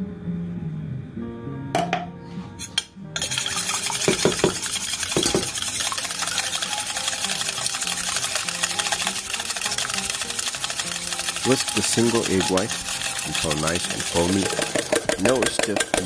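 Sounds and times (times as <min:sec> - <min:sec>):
whisk beating in metal bowl: 0:03.2 - 0:16.0
whisk clicks: 0:03.2 - 0:16.0.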